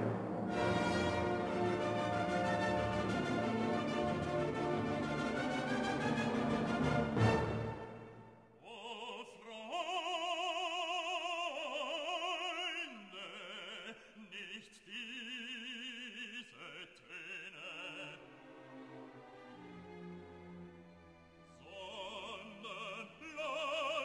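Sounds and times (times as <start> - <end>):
operatic singing: 8.6 - 19.7, 21.5 - 24.0.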